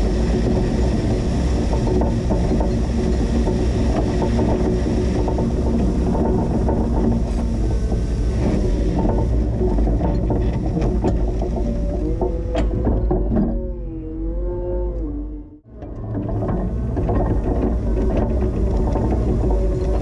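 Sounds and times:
rattles and clanks: 0.0s - 14.0s, 15.7s - 20.0s
forklift engine rumble: 0.0s - 20.0s.

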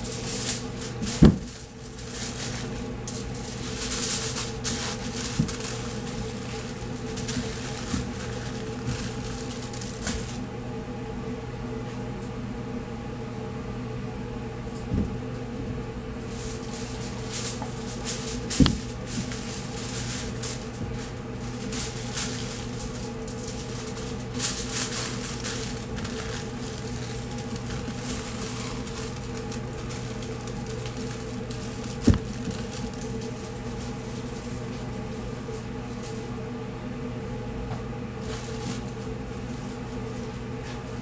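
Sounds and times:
aluminium foil crinkling: 0.0s - 10.5s, 16.3s - 36.3s, 38.2s - 40.4s
steady machine hum: 0.0s - 41.0s.

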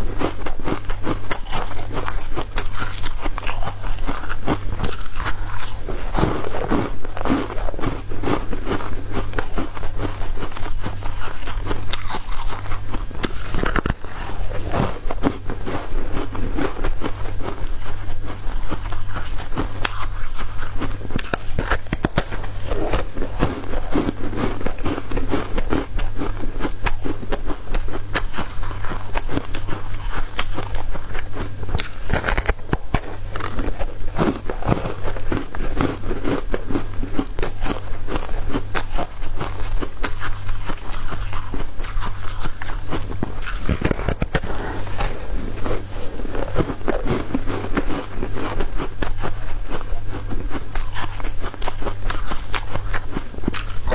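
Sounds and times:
ice crunching in mouth: 0.0s - 53.9s
steady low hum: 0.0s - 53.9s.

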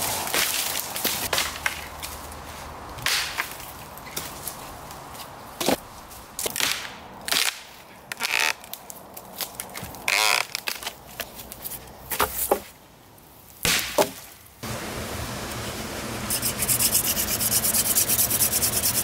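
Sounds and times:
twigs and leaves rustling: 0.0s - 6.7s.

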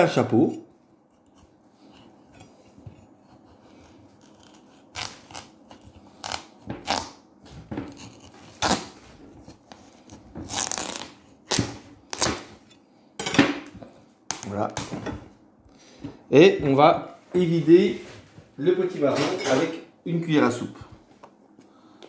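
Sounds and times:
knife cutting through squash: 1.2s - 7.2s, 7.8s - 12.6s.

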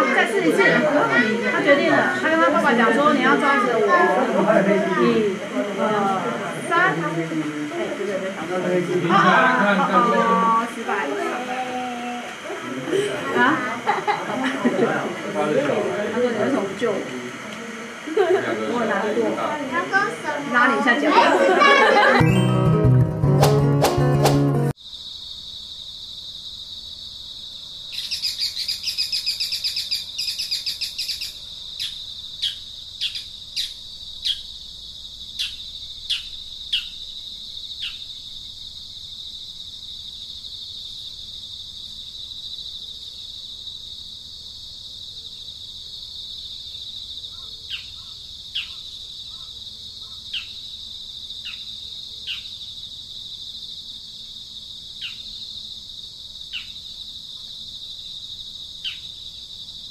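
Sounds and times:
high insect drone: 0.0s - 22.4s, 24.7s - 59.9s
bird chirping trill: 28.0s - 34.5s.

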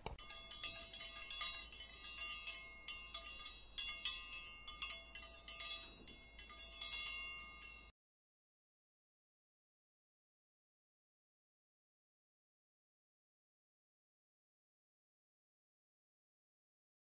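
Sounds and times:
chimes tinkling: 0.1s - 7.9s.

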